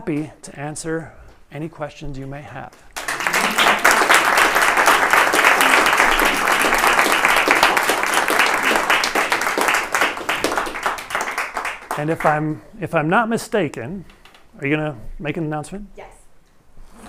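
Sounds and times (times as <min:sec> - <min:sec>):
audience applauding: 0:03.0 - 0:12.5.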